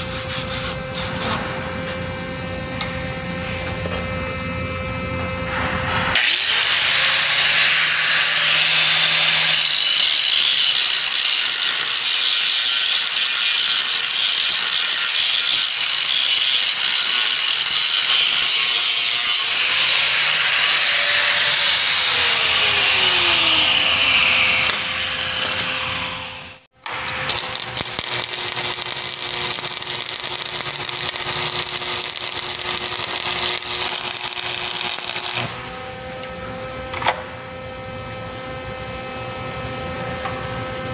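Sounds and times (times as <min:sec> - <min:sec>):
angle grinder grinding steel: 0:05.6 - 0:36.2
arc welding crackle: 0:26.8 - 0:35.7.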